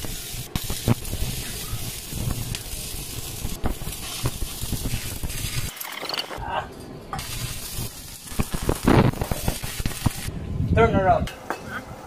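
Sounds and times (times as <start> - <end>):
welding arc crackling and popping: 0.0 - 5.7, 7.2 - 10.3.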